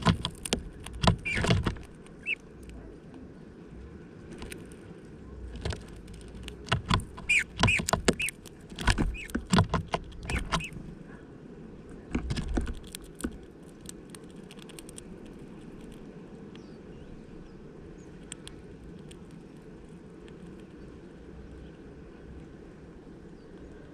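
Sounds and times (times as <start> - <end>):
bird pecking at plastic feeder: 0.0 - 2.8, 5.5 - 10.9, 12.1 - 16.0.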